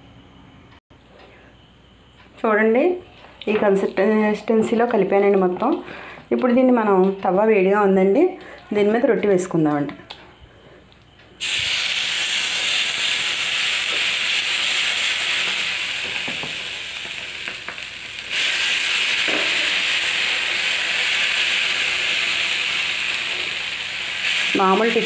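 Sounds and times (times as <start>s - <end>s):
dough sizzling on hot griddle: 11.4s - 25.0s.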